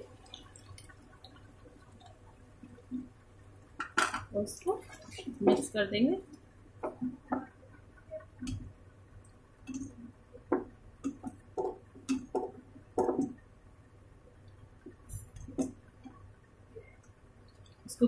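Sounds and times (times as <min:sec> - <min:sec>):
wooden spatula knocking on pan: 0:06.8 - 0:07.5, 0:10.5 - 0:13.4.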